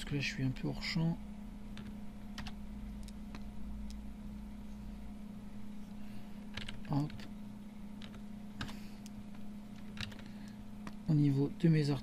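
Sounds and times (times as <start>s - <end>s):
low electrical hum: 0.0s - 12.0s
computer keys clicking: 1.7s - 4.0s, 6.5s - 7.3s, 8.0s - 11.1s
stylus tapping: 8.0s - 11.1s.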